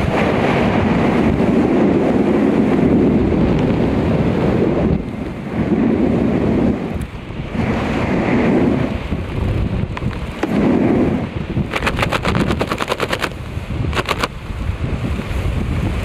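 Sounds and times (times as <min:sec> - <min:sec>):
heavy wind buffeting microphone: 0:00.0 - 0:16.0
rapid sharp flapping snaps: 0:11.6 - 0:14.4.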